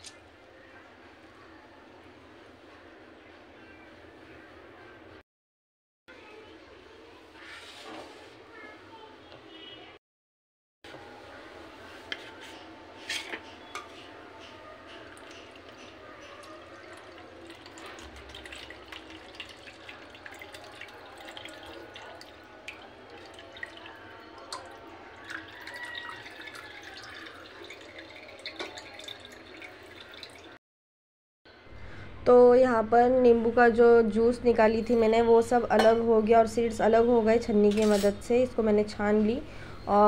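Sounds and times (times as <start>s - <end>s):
juice trickling into plastic bowl: 16.5s - 30.6s.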